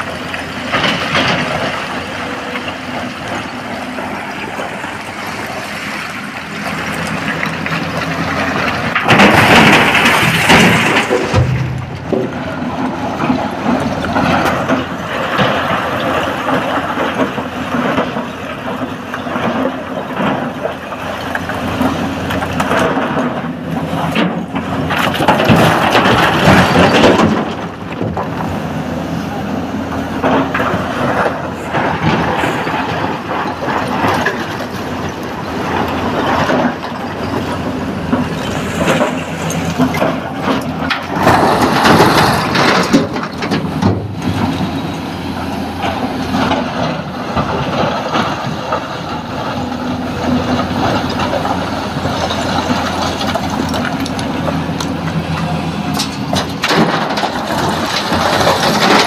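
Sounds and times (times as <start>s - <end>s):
diesel engine running: 0.0s - 59.0s
rock scraping and tumbling: 45.9s - 59.0s.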